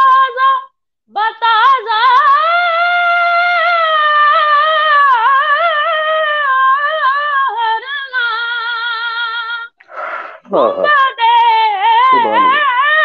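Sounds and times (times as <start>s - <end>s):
boy singing unaccompanied: 10.5s - 13.0s.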